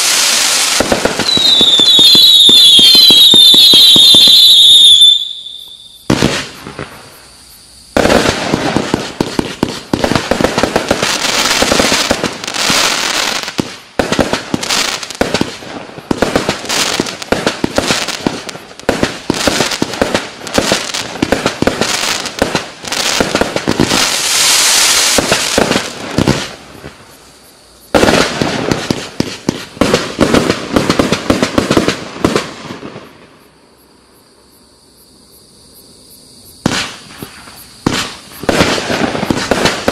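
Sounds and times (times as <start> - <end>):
firework cake firing volleys: 0.0 - 5.3.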